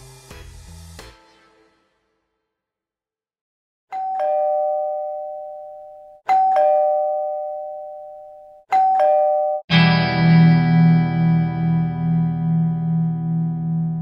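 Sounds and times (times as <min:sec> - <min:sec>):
two-note doorbell chime: 0:03.9 - 0:09.7.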